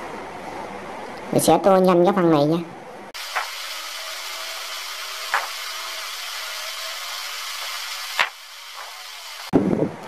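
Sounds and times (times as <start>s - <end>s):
fast-forwarded recording hiss: 3.1s - 10.0s.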